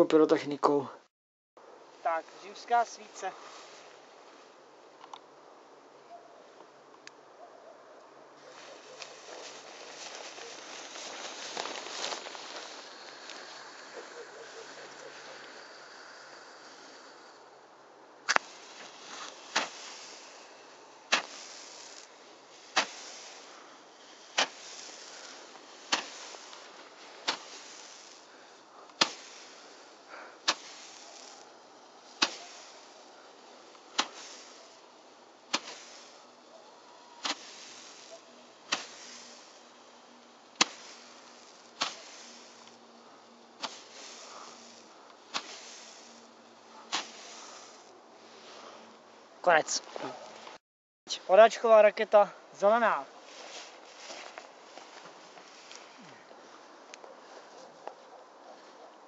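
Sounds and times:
fizzing hiss: 8.6s - 17.6s, 18.2s - 48.9s
roman candle pops: 18.3s - 34.8s, 35.5s - 36.3s, 40.5s - 42.8s, 43.6s - 46.1s.

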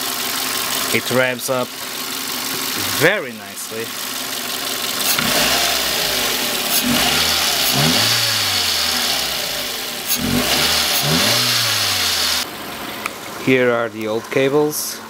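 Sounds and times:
car engine idling and revving: 0.0s - 13.4s.

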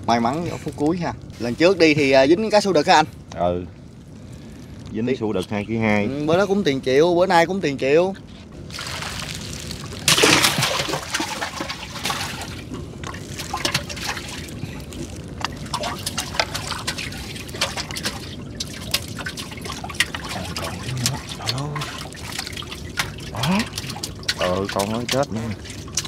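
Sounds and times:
water trickling and splashing: 8.5s - 26.0s
small drips: 8.6s - 26.0s.

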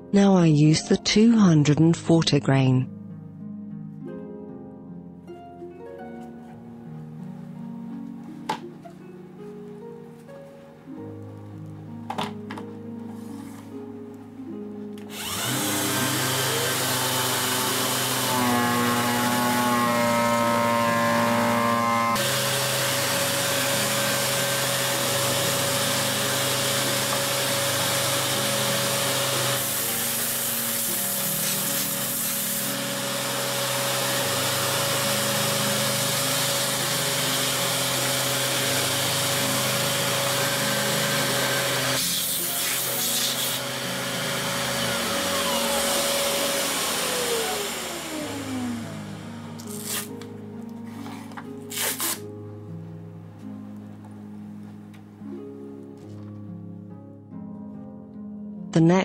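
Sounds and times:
disc sander sanding wood: 15.1s - 49.8s.

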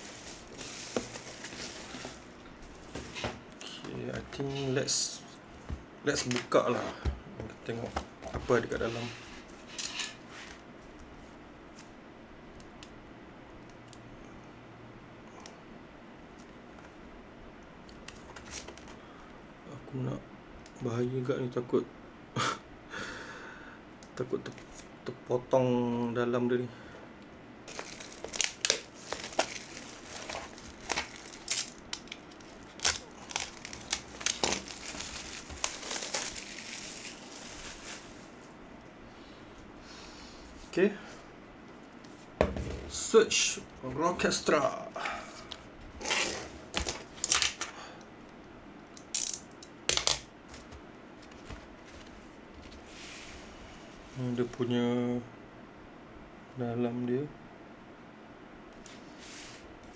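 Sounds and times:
plastic wrap crinkling: 0.0s - 2.4s, 27.7s - 38.4s.

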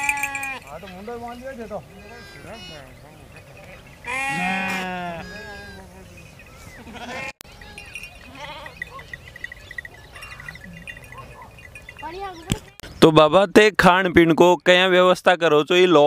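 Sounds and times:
sheep bleating: 0.0s - 0.7s, 1.9s - 3.0s, 3.6s - 6.1s, 6.8s - 9.2s.

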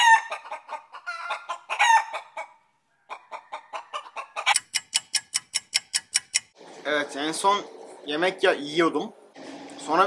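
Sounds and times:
hen clucking: 0.0s - 6.5s
rapid even ticking: 4.5s - 6.6s.

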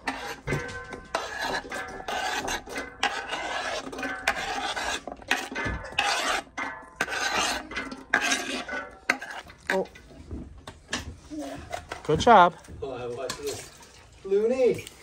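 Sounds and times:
spoon scraping cutting board: 0.0s - 10.1s.

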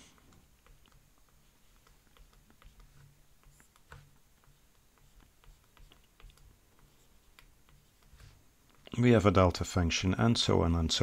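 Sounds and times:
stylus tapping on tablet screen: 0.2s - 8.9s.

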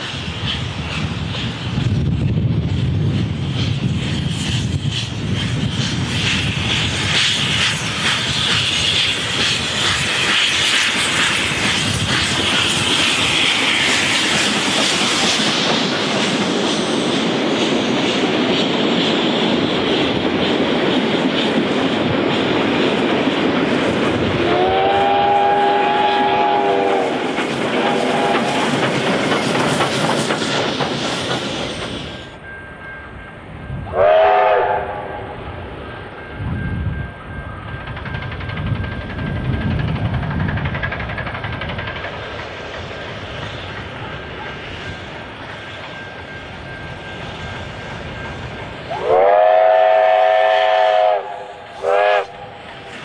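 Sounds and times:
steam locomotive chuffing: 0.0s - 53.0s
chime-like steam whistle: 24.4s - 28.8s, 32.0s - 38.3s, 44.6s - 52.7s
carriages clattering over rail joints: 27.2s - 32.4s, 37.6s - 48.8s.

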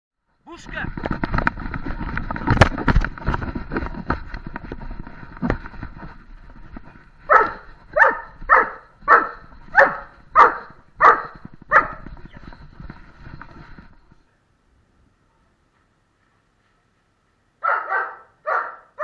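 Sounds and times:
scuffing and knocking on rubble: 0.8s - 14.2s
dog barking loudly: 7.3s - 12.1s, 17.6s - 19.0s.

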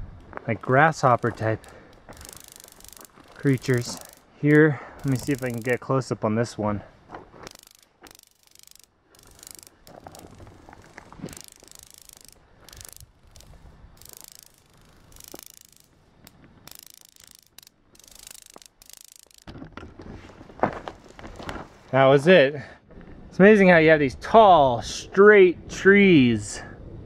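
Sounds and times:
insects rattling: 0.6s - 6.1s, 7.1s - 19.9s.

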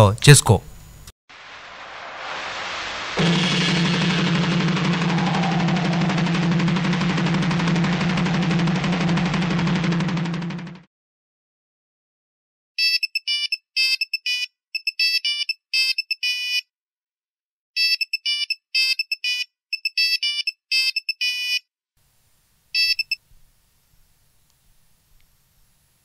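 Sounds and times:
phone ringtone beeps: 12.8s - 16.6s, 17.8s - 21.6s, 22.8s - 23.2s.

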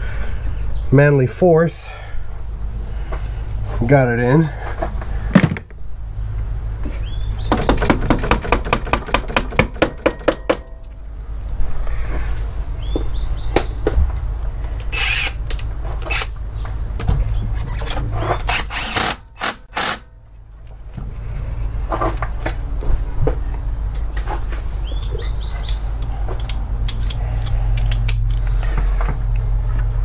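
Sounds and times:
knocks: 5.4s - 5.8s
rapid ratchet clicks: 18.5s - 20.1s
steady low rumble: 20.1s - 30.0s.

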